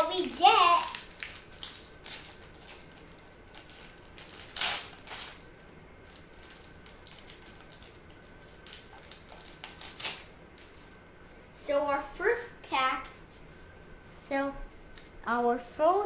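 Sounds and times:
foil wrapper tearing and crinkling: 0:00.2 - 0:05.4, 0:06.0 - 0:10.8.

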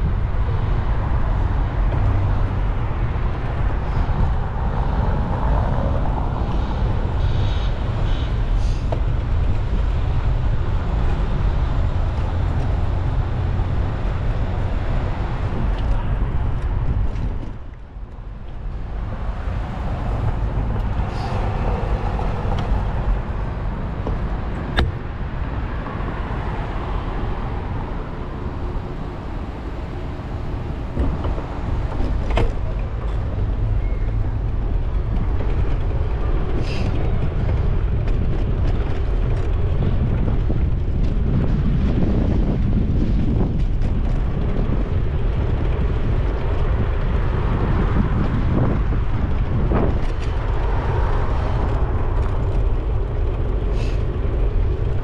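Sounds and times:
car traffic rumbling: 0:00.0 - 0:55.0.

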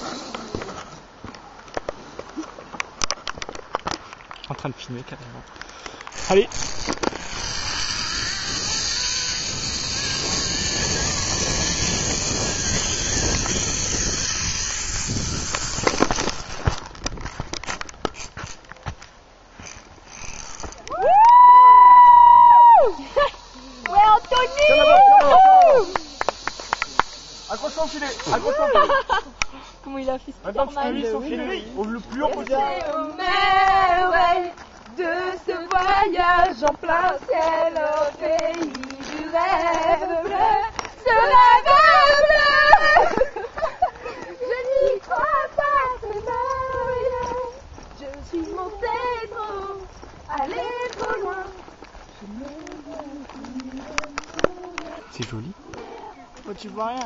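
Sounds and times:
zip-line pulley hissing on cable: 0:00.0 - 0:01.0, 0:06.1 - 0:16.8, 0:19.6 - 0:29.2, 0:33.2 - 0:51.6
women singing unaccompanied: 0:32.4 - 0:43.5, 0:44.1 - 0:55.1.

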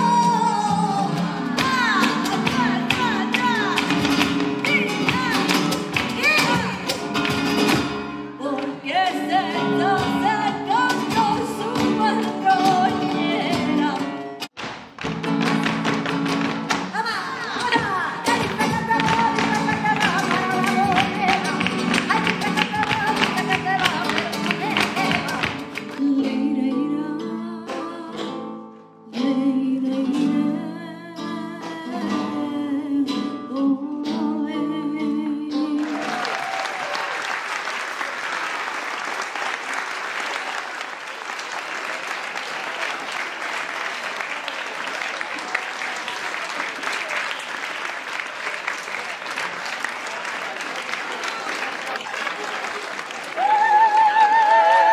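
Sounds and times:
guitar: 0:00.0 - 0:36.9
flamenco singing: 0:00.0 - 0:37.2, 0:52.8 - 0:54.9
audience applauding: 0:17.4 - 0:26.0, 0:35.8 - 0:54.9.

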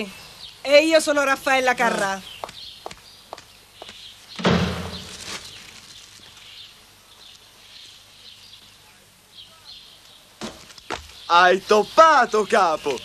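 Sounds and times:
faint bird chirps: 0:00.0 - 0:13.0
door slamming shut: 0:04.4 - 0:05.2.

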